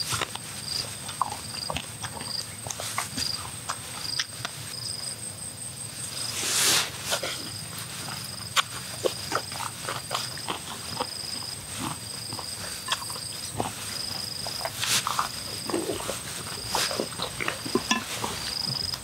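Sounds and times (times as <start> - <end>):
insects trilling: 0.0 - 19.0
short rustling hiss: 6.1 - 7.3.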